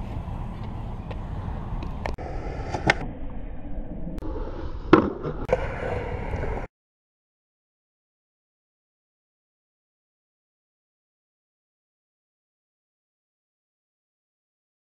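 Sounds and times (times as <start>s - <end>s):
skateboard wheels rolling on concrete: 0.0s - 3.1s, 4.2s - 6.7s
skateboard clacks: 4.9s - 6.7s.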